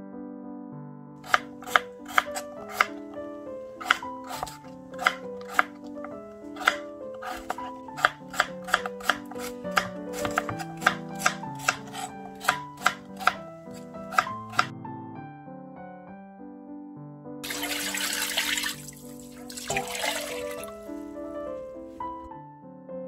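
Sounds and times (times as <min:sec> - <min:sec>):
knife chopping on plastic board: 0:01.2 - 0:14.7
background music: 0:01.2 - 0:23.0.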